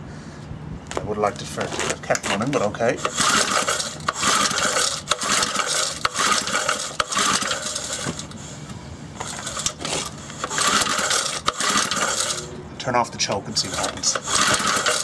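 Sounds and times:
engine turning over: 1.7s - 12.6s, 13.6s - 15.0s
engine recoil starter cord pulls: 1.8s - 8.4s, 9.2s - 12.5s, 13.6s - 15.0s.

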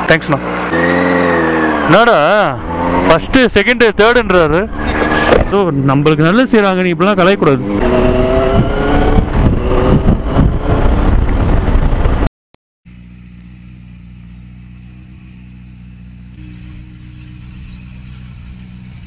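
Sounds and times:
motorcycle engine accelerating: 0.0s - 5.8s, 7.1s - 12.3s, 12.9s - 18.2s
wind rushing over microphone: 7.6s - 12.3s.

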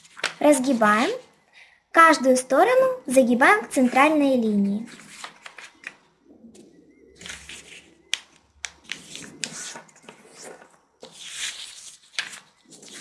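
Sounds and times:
paper rustling and creasing: 4.9s - 6.0s, 7.2s - 8.0s, 8.8s - 13.0s
fingers clicking paper folds: 7.2s - 9.8s.

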